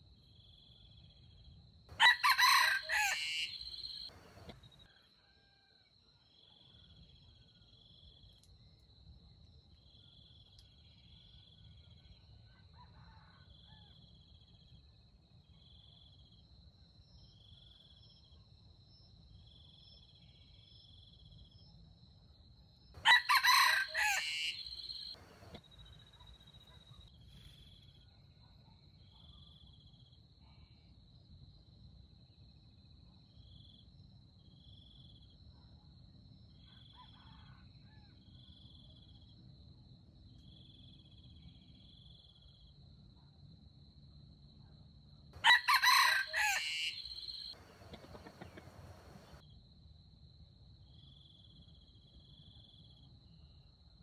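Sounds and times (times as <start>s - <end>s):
insects droning: 0.2s - 28.4s, 36.3s - 54.0s
short insect chirp: 0.3s - 5.0s, 23.0s - 28.2s, 45.4s - 49.5s
rooster crowing: 1.9s - 5.9s, 12.5s - 14.0s, 23.0s - 25.6s, 45.4s - 49.4s.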